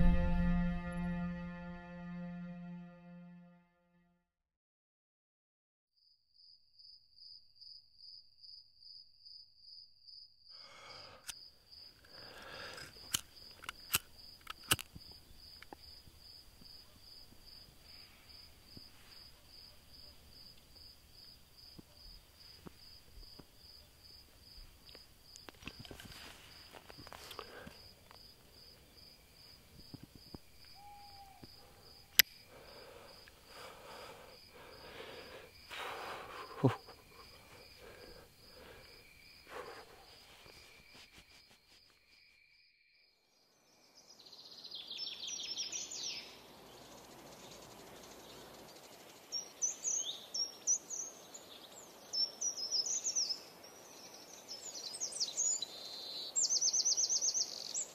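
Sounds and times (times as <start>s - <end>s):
cricket chirping: 6.4s - 57.9s.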